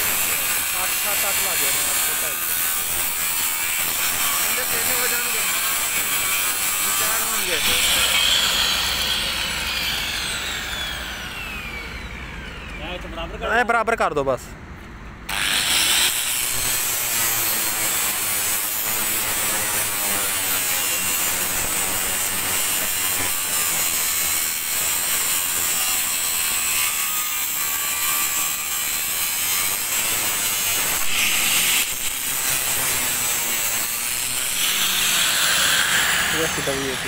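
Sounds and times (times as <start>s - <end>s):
angle grinder cutting steel: 0.0s - 13.0s, 15.3s - 37.0s.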